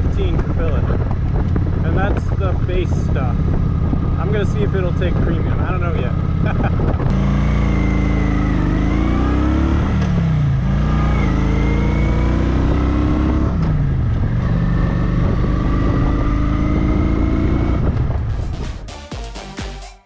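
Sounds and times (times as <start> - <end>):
motorcycle engine accelerating: 0.0 - 18.9.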